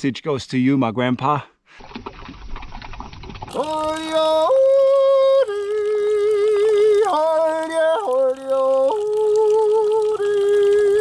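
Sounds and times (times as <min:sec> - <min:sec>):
slow mournful tune: 0:03.6 - 0:11.0.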